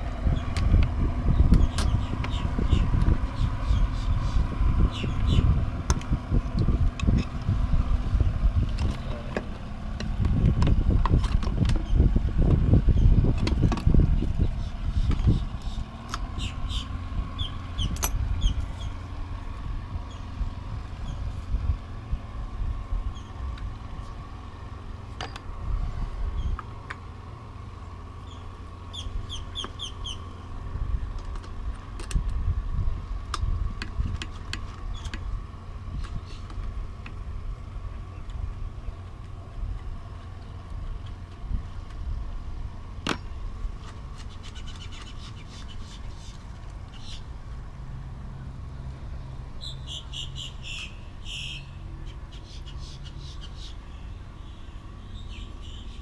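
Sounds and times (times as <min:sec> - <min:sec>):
wind rumble on microphone: 0:00.0 - 0:52.8
bird chirping: 0:01.3 - 0:05.6, 0:14.2 - 0:19.1, 0:28.2 - 0:30.5, 0:44.2 - 0:47.3, 0:49.6 - 0:56.0.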